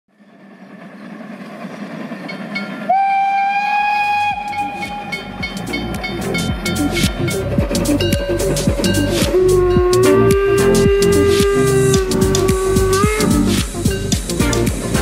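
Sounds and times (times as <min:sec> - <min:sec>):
steam locomotive exhaust rumbling: 0:00.1 - 0:15.0
steam whistle blast: 0:02.9 - 0:07.4, 0:09.4 - 0:14.0.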